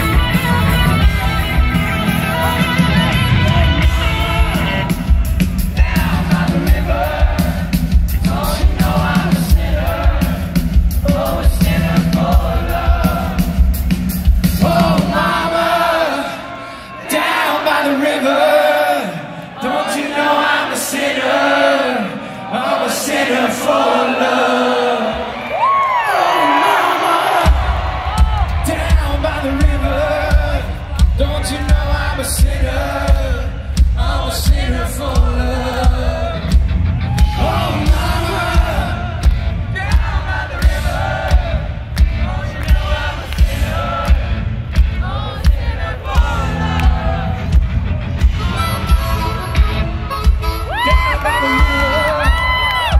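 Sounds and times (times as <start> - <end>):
live rock band playing: 0.0 - 15.3, 27.5 - 52.9
drum beat and cymbals: 0.0 - 15.7, 27.4 - 52.9
people singing into microphones: 2.1 - 47.7.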